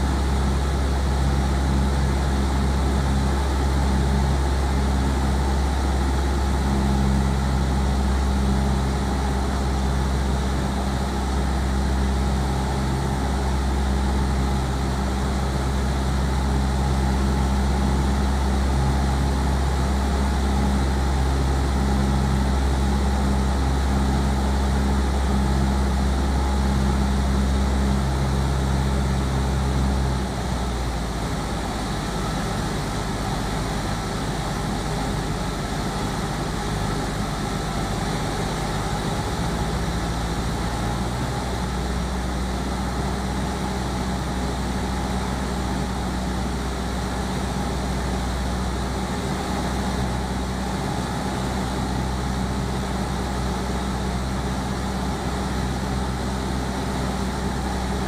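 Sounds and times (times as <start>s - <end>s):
light aircraft engine droning: 0.0s - 58.0s.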